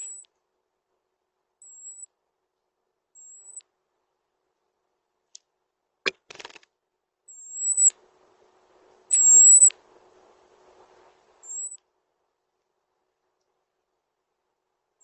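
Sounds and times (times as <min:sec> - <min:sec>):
robin high drawn-out calls: 0:09.1 - 0:09.7.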